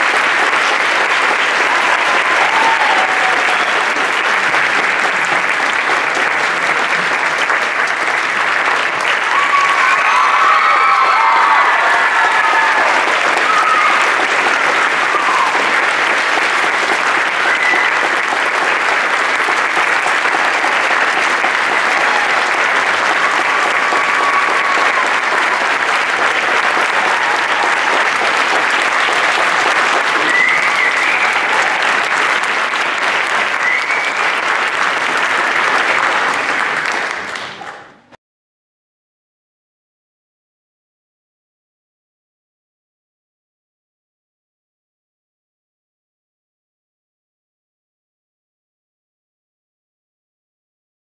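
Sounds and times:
audience applauding: 0.0s - 38.1s.

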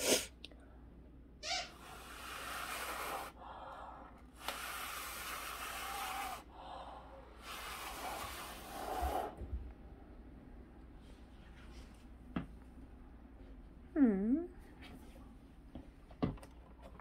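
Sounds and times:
person blowing hard hissing: 0.0s - 0.3s, 1.6s - 3.6s, 4.3s - 9.4s
soft breaths: 1.8s - 9.6s.

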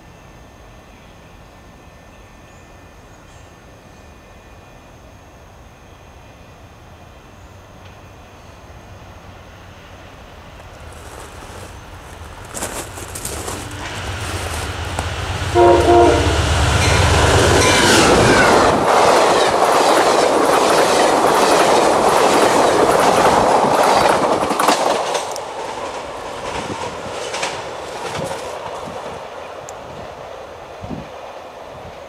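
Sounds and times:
train wheels clacking on rails: 10.6s - 30.1s
train air horn: 13.4s - 18.5s.

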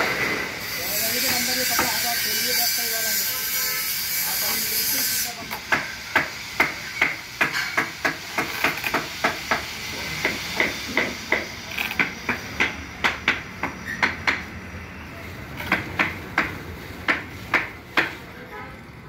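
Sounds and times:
hand tools knocking on wood: 1.2s - 2.1s, 5.4s - 14.5s, 15.6s - 18.2s.

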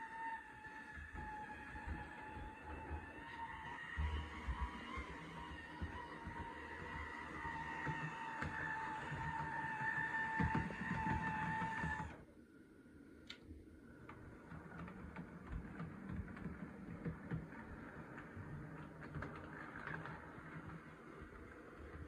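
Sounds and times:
model train motor hum: 0.0s - 12.2s, 14.1s - 22.0s
wheels clicking over rail joints: 1.2s - 12.2s, 14.1s - 22.0s.

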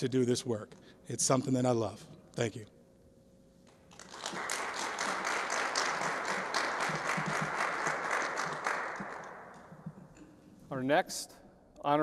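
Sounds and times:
crowd applause: 4.0s - 9.6s.

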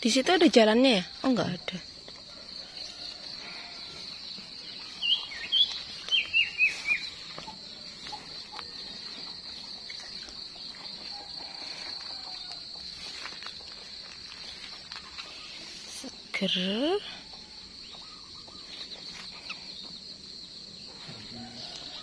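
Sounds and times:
insects droning: 0.0s - 22.0s
bird chirping: 3.4s - 11.1s, 14.4s - 21.2s.

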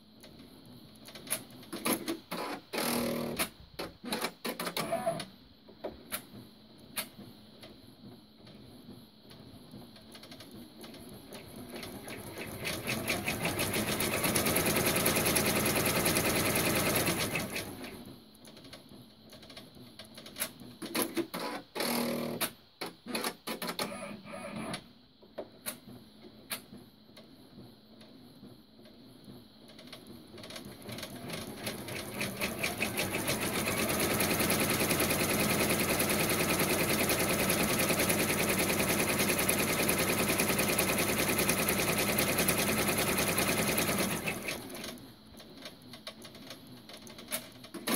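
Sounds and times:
embroidery machine stitching: 1.7s - 5.3s, 10.1s - 18.0s, 20.8s - 24.8s, 29.8s - 45.0s
scattered clicks and knocks: 5.7s - 12.0s, 18.4s - 21.4s, 28.8s - 32.2s, 43.1s - 47.9s.

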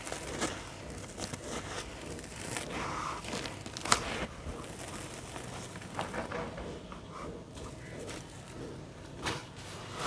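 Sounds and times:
hands crunching wet gritty sand: 0.0s - 6.0s.

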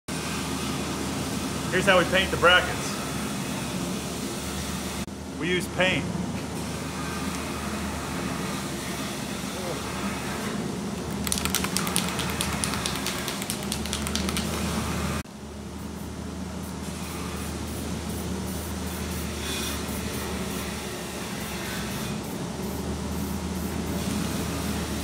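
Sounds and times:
fan humming: 0.1s - 15.6s
spray can ball rattling: 11.0s - 14.9s
spray paint hissing: 11.0s - 14.9s.

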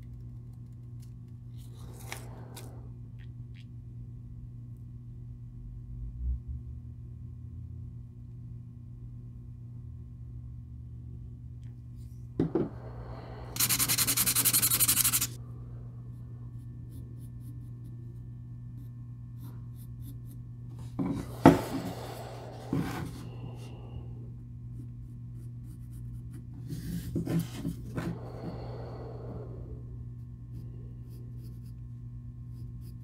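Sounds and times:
steady low hum: 0.0s - 33.0s
pencil scratching on wood: 13.6s - 15.4s.

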